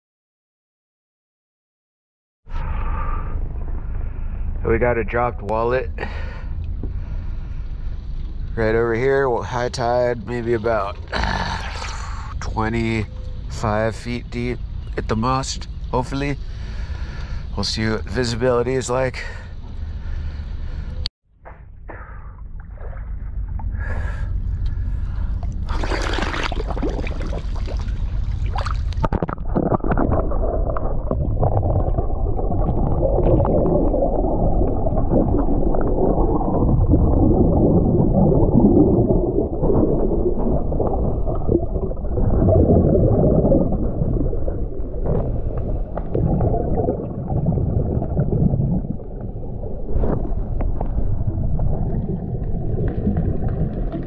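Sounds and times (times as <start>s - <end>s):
water splashing: 25.2s - 54.0s.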